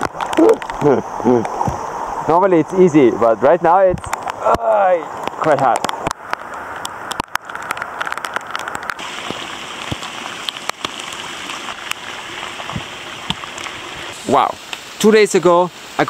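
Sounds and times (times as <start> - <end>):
raindrop taps: 0.0 - 1.8, 3.9 - 14.1
steady rain falling: 0.0 - 16.0
bicycle splashing through water: 7.2 - 14.4.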